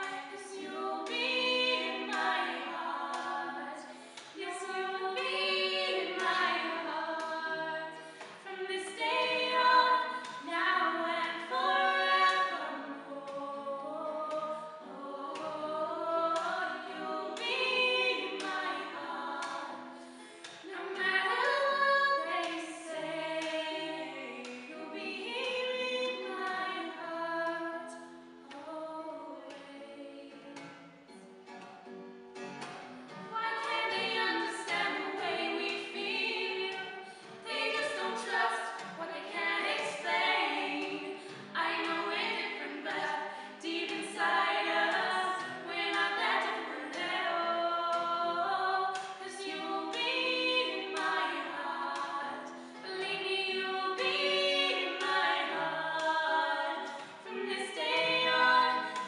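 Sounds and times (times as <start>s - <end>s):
women singing in harmony: 0.0s - 30.6s, 33.3s - 59.0s
acoustic guitar: 0.0s - 59.0s.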